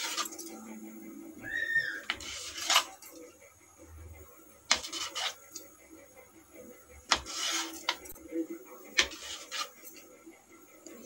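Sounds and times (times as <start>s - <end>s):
knife slicing and scraping plate: 0.0s - 0.4s, 2.0s - 3.1s, 4.7s - 5.6s, 7.1s - 8.2s, 9.0s - 10.0s.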